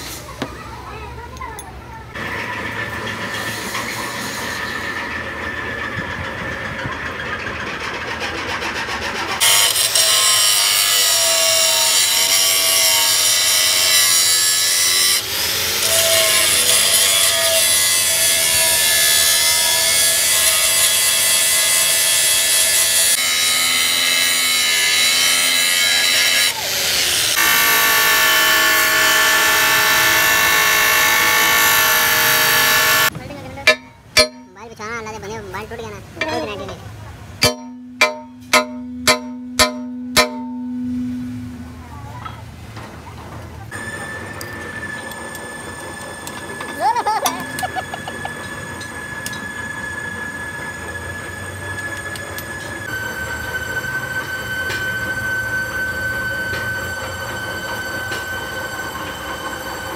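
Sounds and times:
angle grinder cutting metal: 9.4s - 33.1s, 33.7s - 34.6s, 37.4s - 41.6s.

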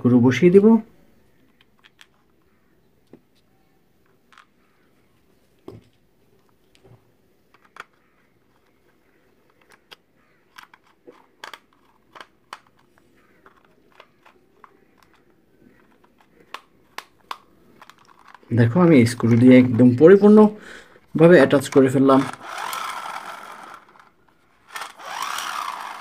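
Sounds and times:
faint clicks of screws on plastic: 5.6s - 18.4s.

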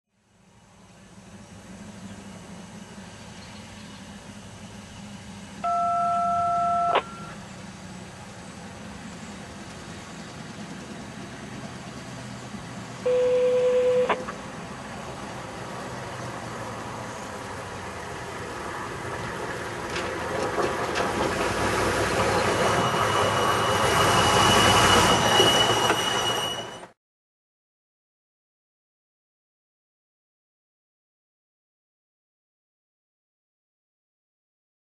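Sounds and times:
rail wheels and engine rumbling: 0.2s - 27.0s
high squeal from rail wheels: 5.6s - 7.4s, 20.6s - 27.0s
truck horn blast: 13.1s - 14.2s.

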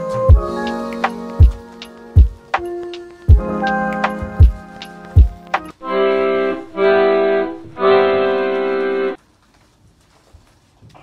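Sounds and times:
light ticking percussion: 0.1s - 5.8s
deep kick drum: 0.3s - 0.6s, 2.2s - 2.4s, 3.3s - 3.6s, 4.2s - 4.6s, 5.2s - 5.4s
held synth chords: 0.3s - 9.2s.

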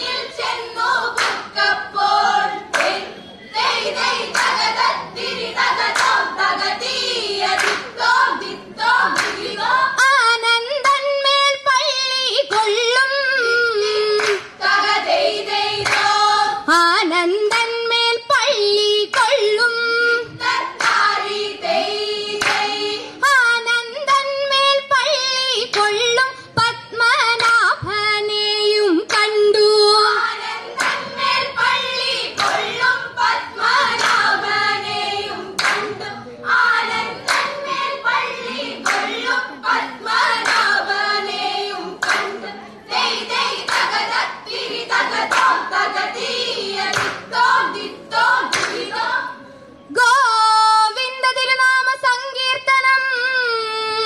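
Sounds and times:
girls singing: 0.0s - 54.0s
sharp hand claps: 1.2s - 1.5s, 2.7s - 3.0s, 4.3s - 4.7s, 5.8s - 6.2s, 7.5s - 7.9s, 9.1s - 9.5s, 13.8s - 14.6s, 15.8s - 16.2s, 20.8s - 21.1s, 22.4s - 22.7s, 30.8s - 31.0s, 32.4s - 32.8s, 33.9s - 34.3s, 35.6s - 36.0s, 37.2s - 37.6s, 38.8s - 39.2s, 40.3s - 40.7s, 42.0s - 42.4s, 43.6s - 44.1s, 45.2s - 45.6s, 46.9s - 47.3s, 48.5s - 48.9s.

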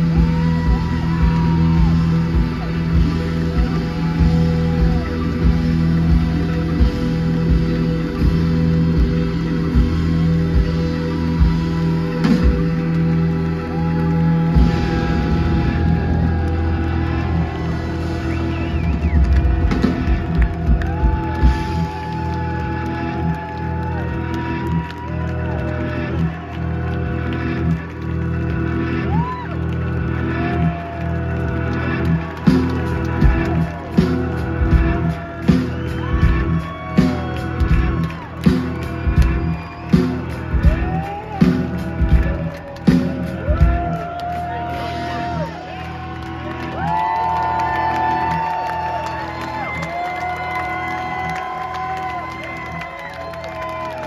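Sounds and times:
heavy drum beat: 0.0s - 22.3s, 32.2s - 45.4s
blues rock band playing: 0.0s - 53.8s
live rock band playing blues: 0.4s - 13.5s.

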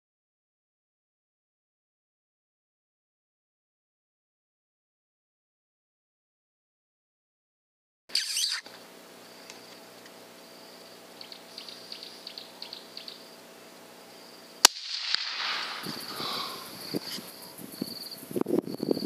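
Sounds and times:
faint insect chirping: 8.1s - 19.0s
rifle shot with rolling echo: 14.6s - 16.7s.

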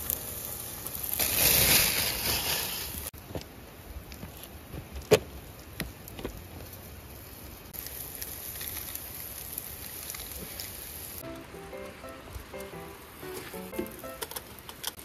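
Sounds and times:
light music tune: 0.0s - 1.0s, 11.2s - 14.6s
meat sizzling on a grill: 0.0s - 3.2s, 6.8s - 11.2s.

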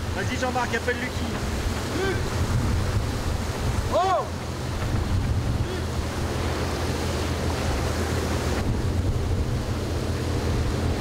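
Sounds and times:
rush of sea water: 0.0s - 11.0s
wind buffeting microphone: 0.0s - 11.0s.

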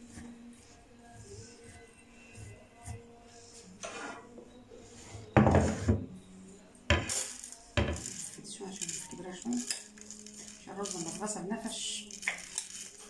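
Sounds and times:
rice grains rustling and scraping: 7.2s - 11.4s, 12.0s - 13.0s.

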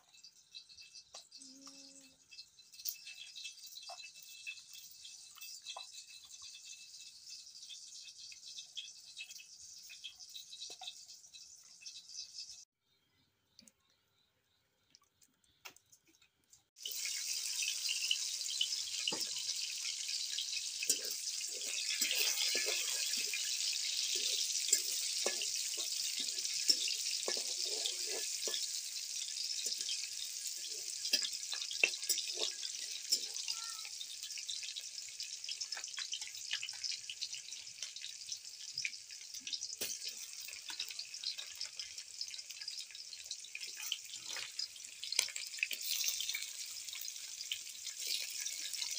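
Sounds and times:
food sizzling in hot oil: 0.0s - 12.8s, 16.7s - 48.9s
spatula scraping pan: 18.0s - 33.5s.

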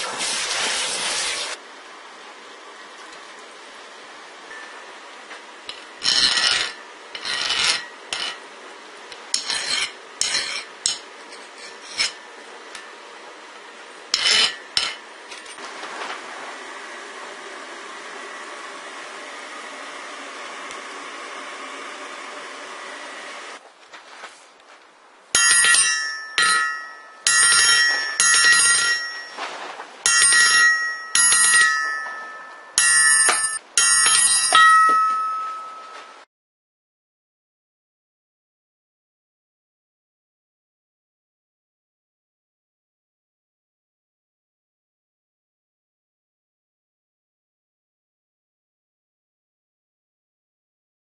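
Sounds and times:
file scraping steel: 5.7s - 8.5s, 9.1s - 12.8s, 14.1s - 15.6s, 25.4s - 29.5s, 30.1s - 35.7s.

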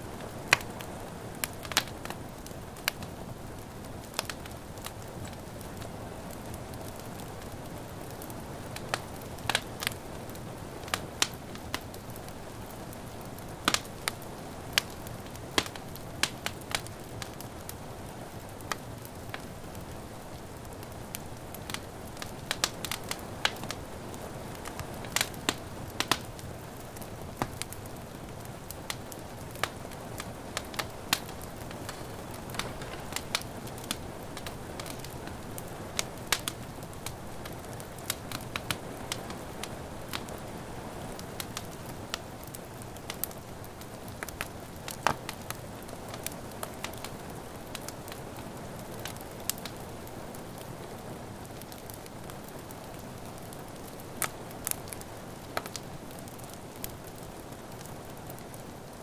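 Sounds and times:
fire crackling and popping: 0.0s - 59.0s
rain hissing: 22.0s - 41.4s.

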